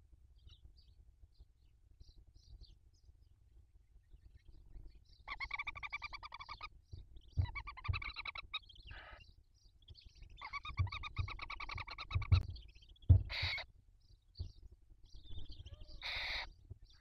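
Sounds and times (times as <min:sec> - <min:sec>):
owls chittering: 0:05.2 - 0:06.7, 0:07.4 - 0:09.3, 0:10.4 - 0:13.7, 0:15.3 - 0:17.0
dull thumps of birds moving: 0:06.9 - 0:08.6, 0:10.4 - 0:13.6, 0:14.4 - 0:15.6
owl hissing: 0:13.3 - 0:13.6, 0:15.8 - 0:16.5.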